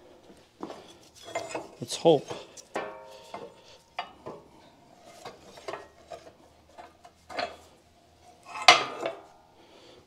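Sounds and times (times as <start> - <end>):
ringing metal clank: 2.8 - 4.2.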